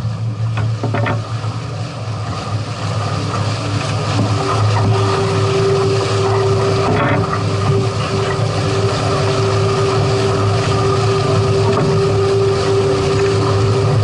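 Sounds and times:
boat motor droning: 0.0s - 14.0s
water noise: 0.0s - 14.0s
wind: 0.0s - 14.0s.

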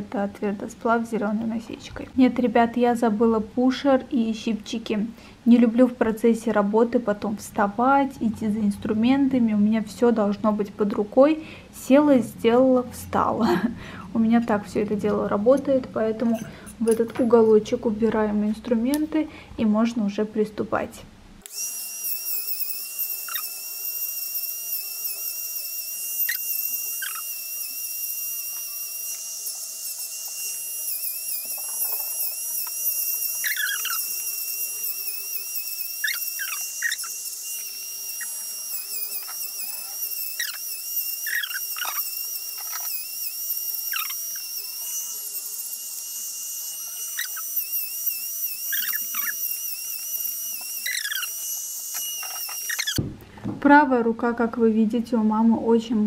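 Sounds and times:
electric nail drill whining: 3.7s - 19.4s, 21.4s - 53.0s
scratchy grinding on fingernails: 34.8s - 45.3s, 46.8s - 53.0s.

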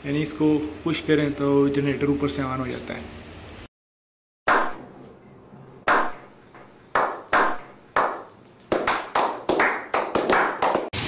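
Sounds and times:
several people clapping: 6.9s - 11.0s
slow hand claps: 6.9s - 11.0s.

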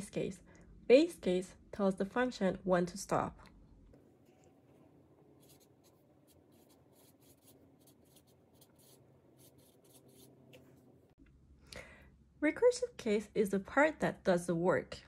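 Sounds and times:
marker scratching on a pad: 4.2s - 10.9s.

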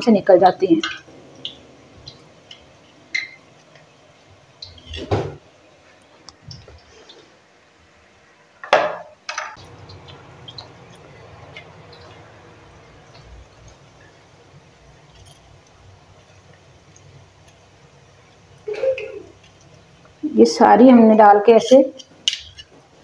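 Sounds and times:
batter frying in oil: 0.0s - 23.0s.

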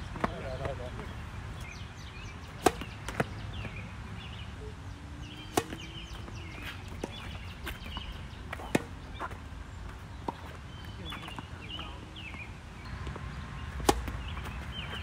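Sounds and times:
faint birds chirping: 0.0s - 15.0s
tennis ball bouncing: 0.1s - 1.7s, 2.5s - 3.8s, 5.3s - 11.5s, 13.0s - 15.0s
tennis racket striking ball: 2.6s - 3.4s, 5.5s - 9.0s, 13.8s - 14.3s.

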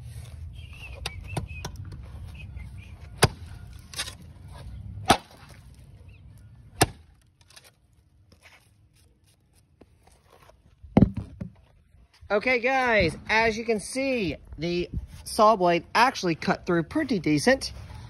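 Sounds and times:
axe chopping tree trunk: 3.2s - 4.2s, 5.0s - 5.6s, 6.8s - 7.7s.

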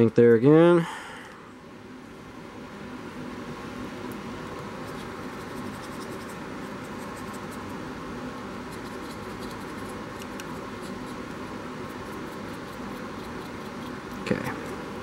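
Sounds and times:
steady background hiss: 0.0s - 15.0s
paintbrush scratching on plastic: 4.8s - 7.7s, 8.7s - 14.8s.

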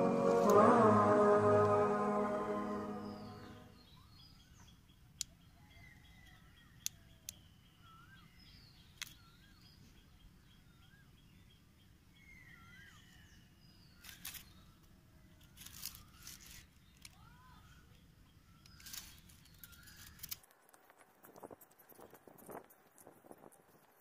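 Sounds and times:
background music: 0.0s - 3.7s
small sharp clicks: 8.9s - 9.3s
whistled bird calls: 12.2s - 14.6s.

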